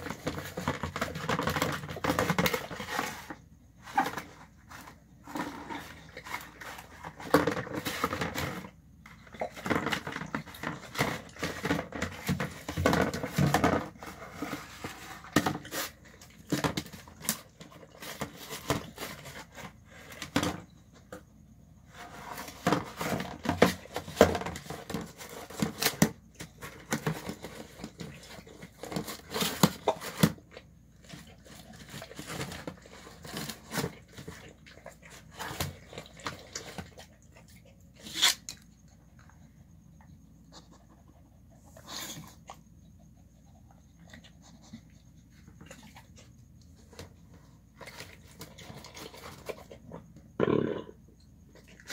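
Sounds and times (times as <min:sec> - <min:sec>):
dog crunching and chewing: 0:22.2 - 0:39.4, 0:40.6 - 0:50.4.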